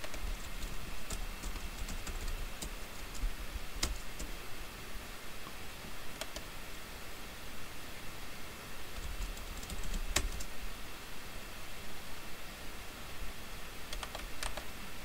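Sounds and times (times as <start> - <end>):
computer keyboard and mouse clicks: 0.0 - 4.3, 6.2 - 6.5, 9.0 - 10.5, 13.9 - 14.7
faint steady hiss: 0.0 - 15.0.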